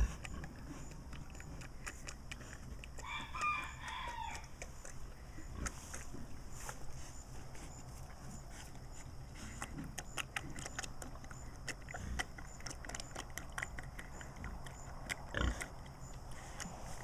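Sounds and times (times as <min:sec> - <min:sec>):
pig slurping water: 0:00.0 - 0:06.1, 0:09.6 - 0:17.0.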